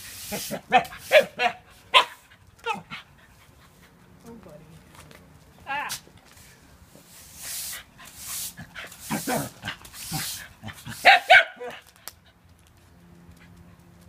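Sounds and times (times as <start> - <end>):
broom bristles scraping concrete: 0.0 - 2.2, 5.8 - 11.8
dog barking sharply: 0.7 - 2.2, 11.0 - 11.8
dog yapping: 0.7 - 3.0, 9.1 - 11.9.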